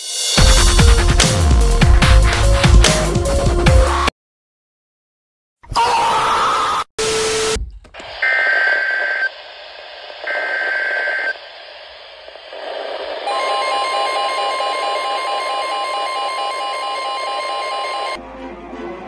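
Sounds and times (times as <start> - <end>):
radio static: 7.3 - 14.8.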